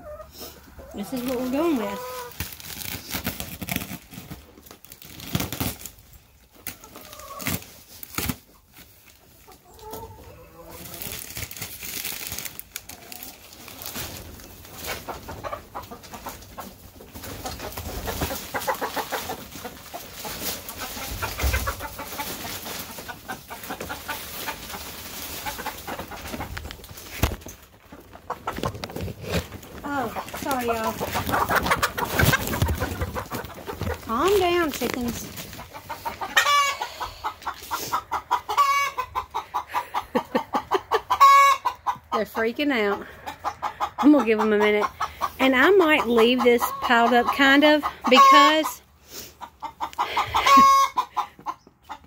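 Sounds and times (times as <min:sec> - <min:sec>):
chickens clucking and squawking: 0:00.0 - 0:52.0
wood shavings rustling: 0:17.3 - 0:36.5.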